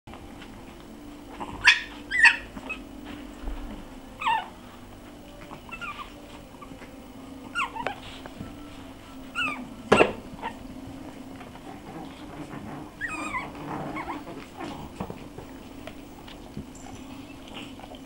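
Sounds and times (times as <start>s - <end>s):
steady low hum: 0.1s - 18.0s
puppies yipping and whimpering: 1.4s - 2.9s, 4.2s - 4.6s, 5.4s - 6.8s, 7.4s - 15.0s, 16.3s - 18.0s.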